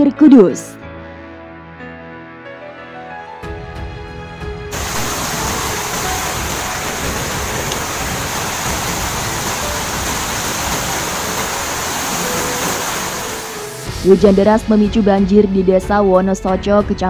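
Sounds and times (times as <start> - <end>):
floodwater rushing in a river: 4.7 - 13.8.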